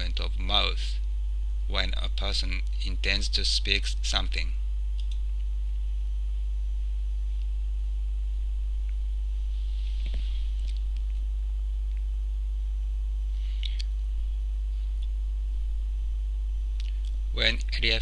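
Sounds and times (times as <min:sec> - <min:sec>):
electrical mains hum: 0:00.0 - 0:18.0
faint short clicks: 0:05.0 - 0:05.2.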